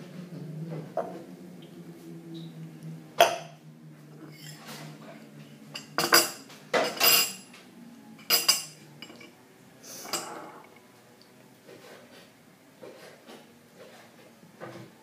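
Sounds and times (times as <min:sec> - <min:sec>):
metal spoon clinking ceramic bowl: 0:08.2 - 0:09.3.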